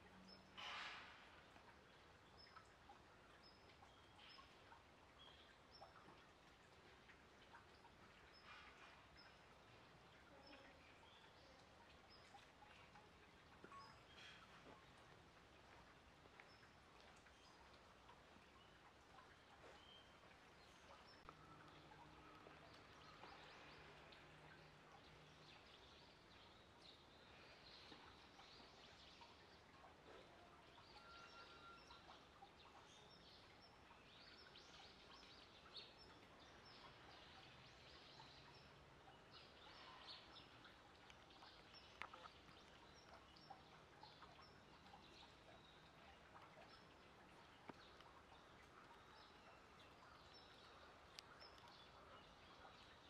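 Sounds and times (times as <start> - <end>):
distant bird chirps: 10.3 - 29.7.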